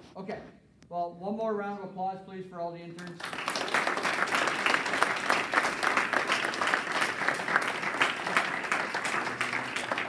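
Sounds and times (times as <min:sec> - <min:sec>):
audience applauding: 0:03.1 - 0:10.0.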